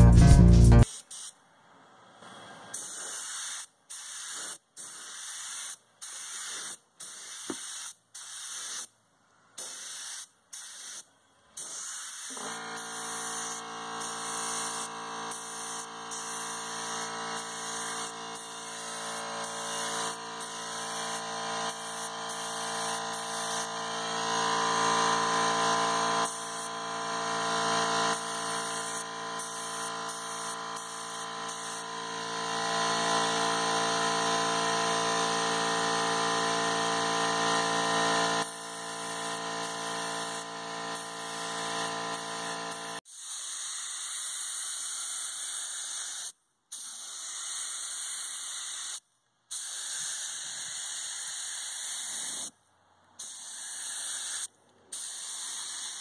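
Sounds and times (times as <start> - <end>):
spray gun hissing in bursts: 0.8 - 1.4, 2.7 - 8.9, 9.6 - 32.1, 38.4 - 52.5, 53.2 - 56.0
air compressor motor hum: 12.2 - 43.0.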